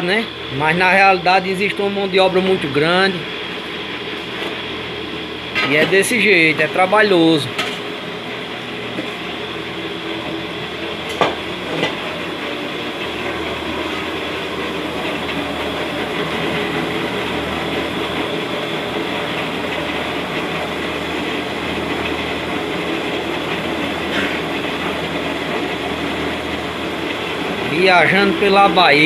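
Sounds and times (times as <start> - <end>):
roasting machine mechanical noise: 0.0 - 29.0.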